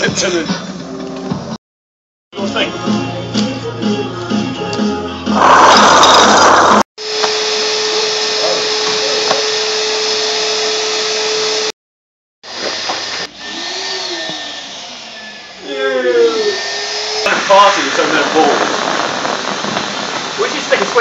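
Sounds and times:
vacuum cleaner running: 0:05.4 - 0:11.7, 0:12.4 - 0:21.0.

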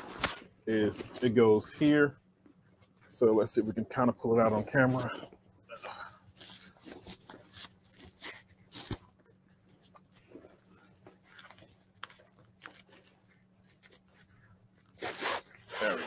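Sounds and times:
backpack fabric rustling: 0:06.3 - 0:16.0.

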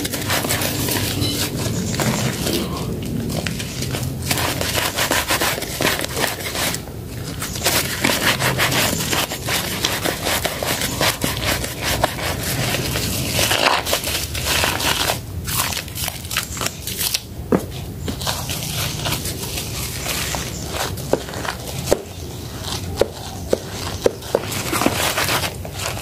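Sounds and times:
sponge squishing in foam: 0:00.0 - 0:17.1.

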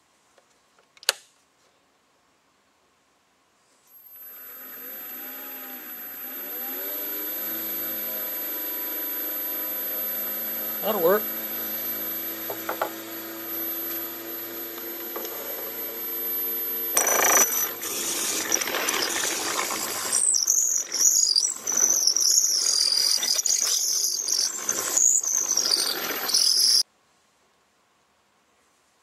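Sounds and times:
wood lathe motor humming: 0:03.9 - 0:26.8
high metallic squeaks: 0:04.9 - 0:26.8.

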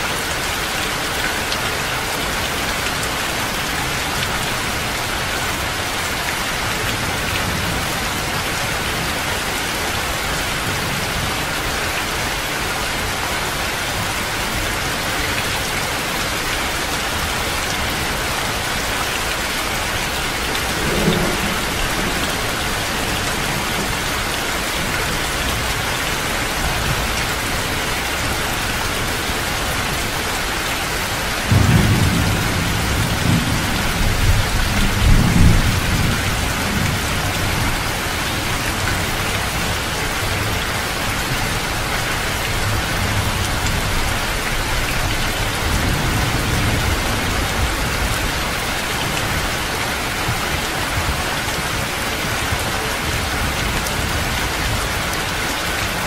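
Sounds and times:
heavy rain falling: 0:00.0 - 0:56.0
thunder rumbling: 0:20.6 - 0:24.1, 0:31.5 - 0:37.8.

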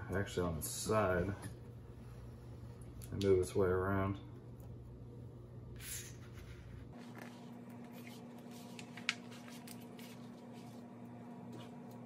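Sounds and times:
faint paper rustles and clicks: 0:06.9 - 0:10.9.

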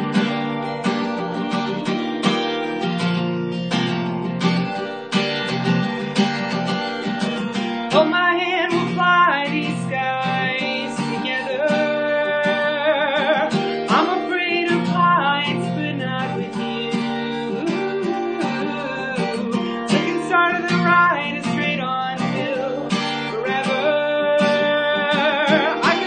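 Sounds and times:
acoustic guitar strumming: 0:00.0 - 0:26.0
man singing: 0:07.5 - 0:26.0.

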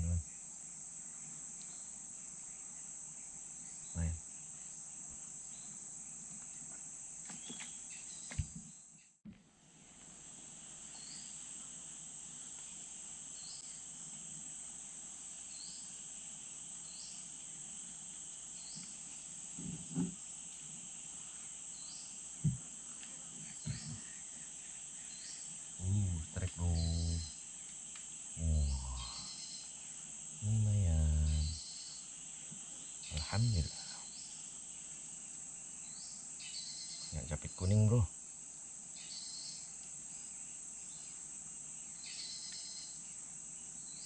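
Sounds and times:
high-pitched insect drone: 0:23.4 - 0:34.8
low voice-like sound: 0:25.8 - 0:27.3, 0:28.4 - 0:29.2, 0:30.4 - 0:31.6.

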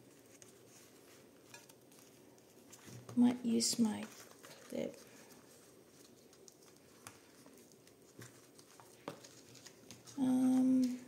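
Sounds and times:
paper tapping and rustling: 0:03.9 - 0:11.0.

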